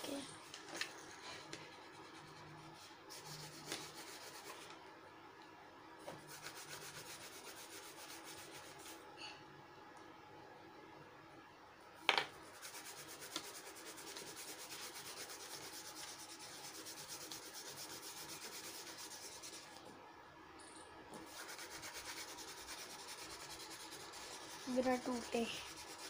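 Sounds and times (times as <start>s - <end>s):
crayon rubbing on paper: 1.7s - 4.6s, 6.2s - 9.0s, 12.5s - 19.7s, 21.3s - 26.0s.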